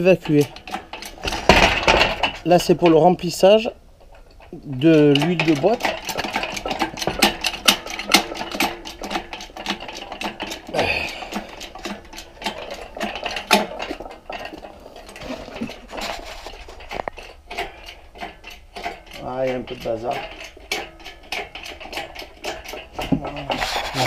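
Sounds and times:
metallic clinks and knocks: 0.0s - 24.0s.

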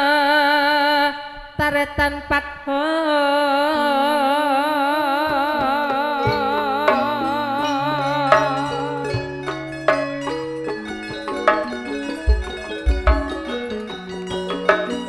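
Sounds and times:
person singing with vibrato: 0.0s - 10.2s
gamelan accompaniment: 5.6s - 15.0s
low metallophone notes: 5.6s - 15.0s.

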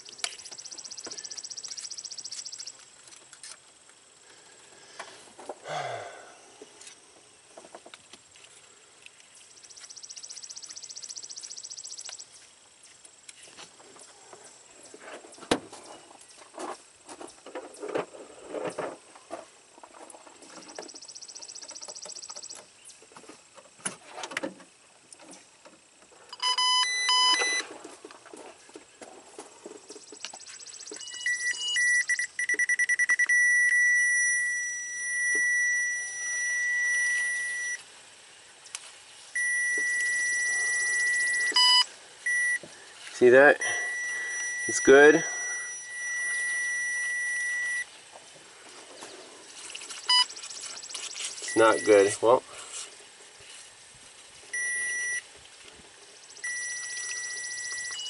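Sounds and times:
electronic beeping: 0.0s - 2.8s, 9.5s - 12.4s, 26.3s - 27.6s, 30.0s - 37.8s, 39.4s - 42.7s, 43.3s - 47.9s, 49.9s - 52.2s, 54.5s - 55.3s, 56.3s - 58.0s
steady high tone: 30.4s - 37.8s, 39.4s - 47.9s, 50.1s - 52.4s, 56.4s - 58.0s.

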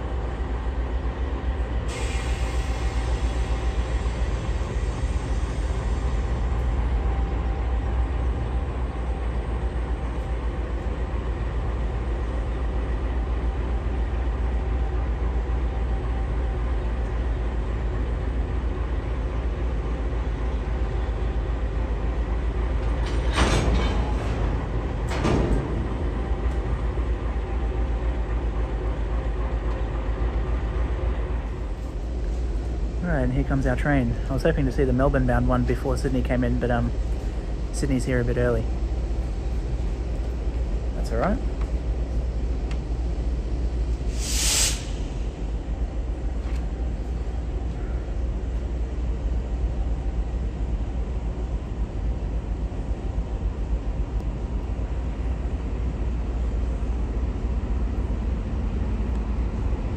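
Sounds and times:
diesel train rumbling: 0.0s - 59.9s
hiss: 1.9s - 6.4s, 44.0s - 45.4s.

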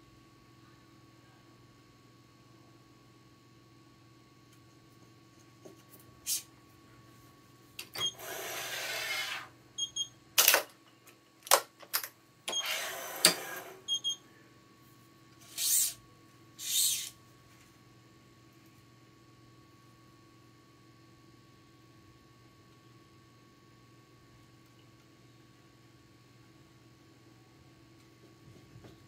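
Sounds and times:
faint steady hum: 0.0s - 29.0s
string hissing through machine: 8.2s - 9.5s.

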